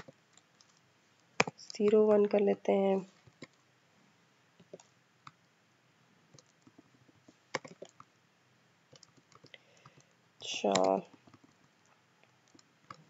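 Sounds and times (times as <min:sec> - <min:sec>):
computer keyboard keystrokes: 0:07.5 - 0:08.1, 0:08.9 - 0:11.6.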